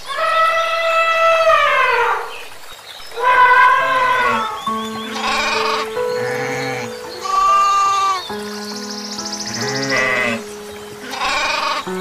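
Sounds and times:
goat bleating: 0:03.8 - 0:07.8, 0:11.1 - 0:11.8
music with long held notes: 0:04.6 - 0:12.0.

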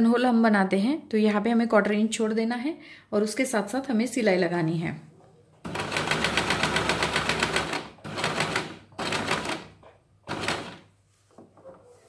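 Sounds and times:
sewing machine stitching: 0:05.6 - 0:10.9.

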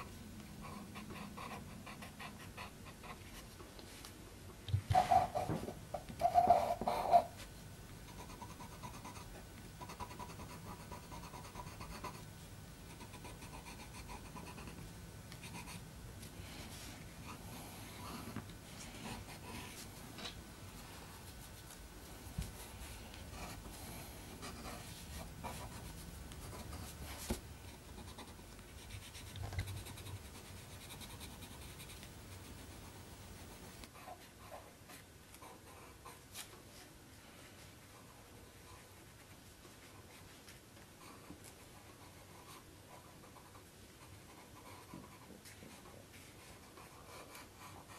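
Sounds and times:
pen scratching on paper: 0:00.6 - 0:03.2, 0:08.1 - 0:12.2, 0:12.9 - 0:14.8, 0:23.3 - 0:23.7, 0:24.3 - 0:34.6.

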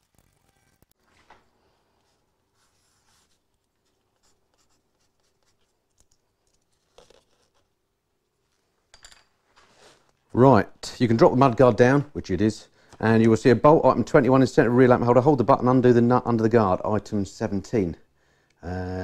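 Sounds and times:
pencil scratching on board: 0:02.6 - 0:05.7.

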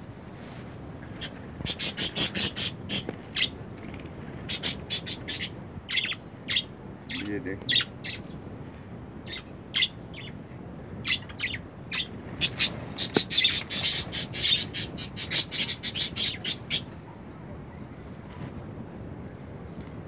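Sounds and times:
budgerigars chirping and squawking: 0:01.2 - 0:03.6, 0:04.4 - 0:08.4, 0:09.3 - 0:10.4, 0:11.0 - 0:16.9.

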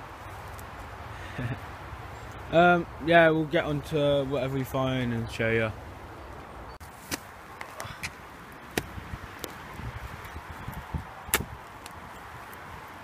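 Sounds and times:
spade chopping into soil: 0:11.3 - 0:11.5.

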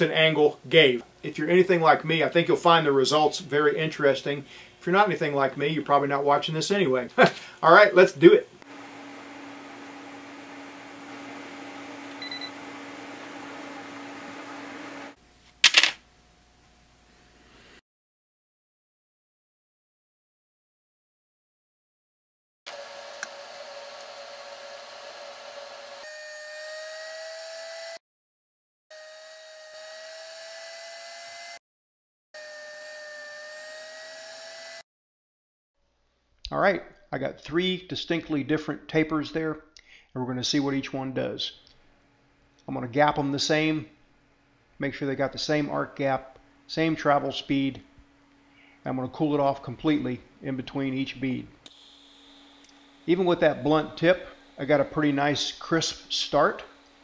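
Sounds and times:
welding equipment electric hum: 0:00.3 - 0:17.8, 0:22.7 - 0:27.5, 0:43.7 - 0:57.0
grinder high whine: 0:08.6 - 0:15.2, 0:22.7 - 0:28.0, 0:51.7 - 0:57.0
short high beep: 0:12.2 - 0:12.5.

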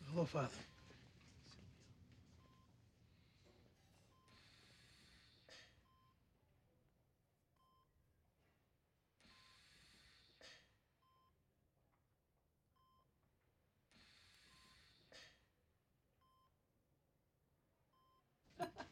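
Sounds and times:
patient monitor beeping: 0:00.0 - 0:06.2.

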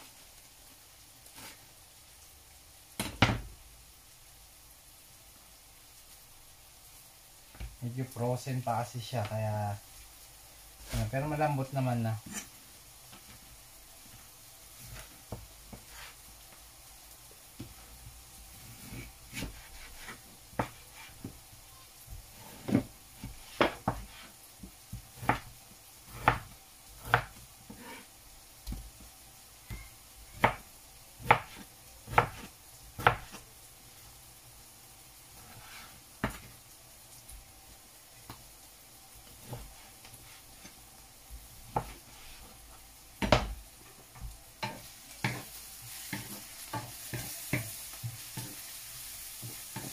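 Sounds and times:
onions sizzling in a pan: 0:00.0 - 0:49.9
knife chopping on cutting board: 0:22.5 - 0:24.2, 0:26.1 - 0:28.0, 0:30.4 - 0:30.6, 0:31.2 - 0:33.4, 0:41.7 - 0:42.0, 0:43.2 - 0:43.6.

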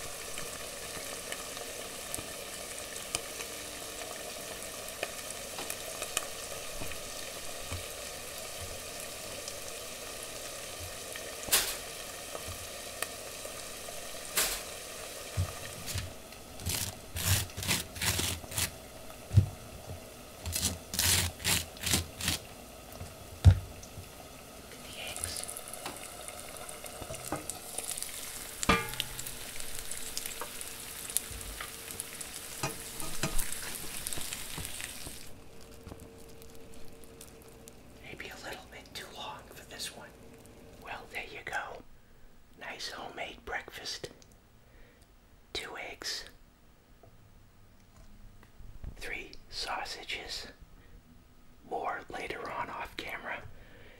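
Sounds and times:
eggs sizzling in a pan: 0:00.0 - 0:40.9.

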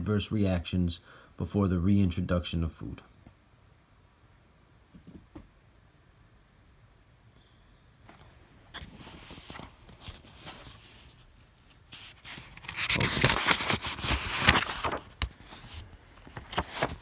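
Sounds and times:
book pages rustling: 0:08.1 - 0:17.0.

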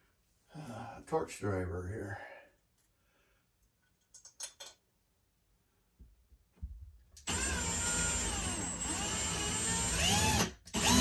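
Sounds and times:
power driver driving a screw: 0:07.2 - 0:11.0.

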